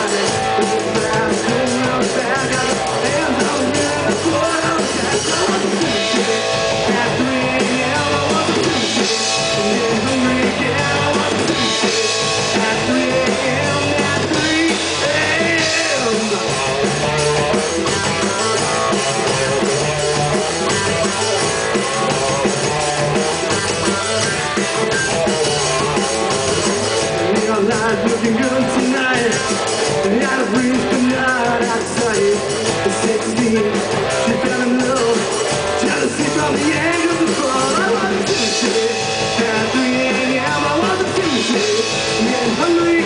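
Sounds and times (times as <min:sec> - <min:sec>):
drum kit: 0:00.0 - 0:43.0
electric guitars: 0:00.0 - 0:43.0.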